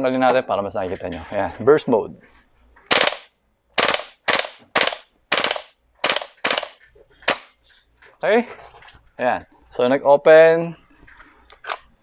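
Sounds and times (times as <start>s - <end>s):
airsoft rifle firing: 2.9s - 7.6s.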